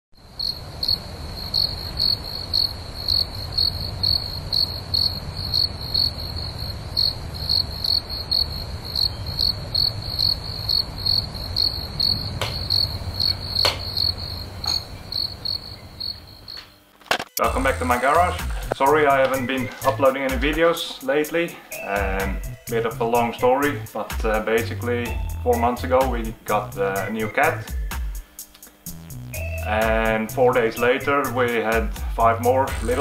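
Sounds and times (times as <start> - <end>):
insect chirping: 0.2 - 23.3.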